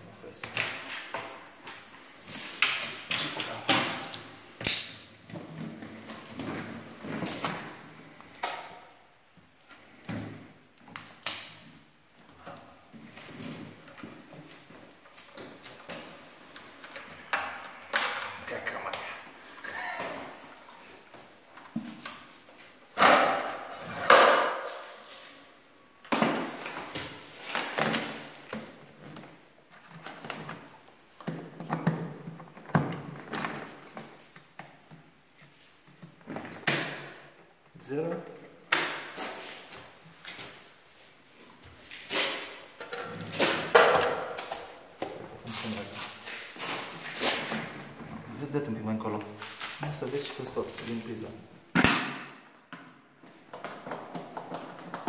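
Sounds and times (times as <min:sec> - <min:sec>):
plastic housings knocking and clattering: 0:52.7 - 0:55.0.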